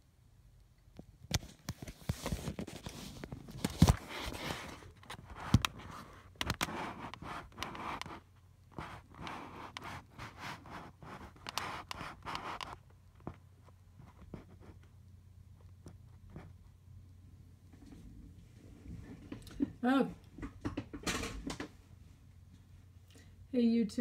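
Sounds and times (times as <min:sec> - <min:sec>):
fingers rubbing on microphone: 0:01.8 - 0:13.4.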